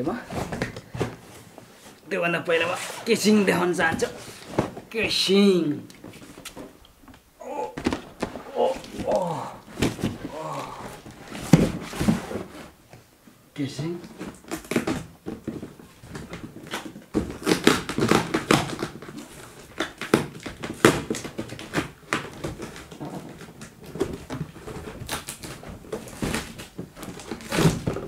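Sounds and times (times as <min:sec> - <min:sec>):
cardboard box scraping and rustling: 0:02.6 - 0:04.9, 0:07.8 - 0:12.8.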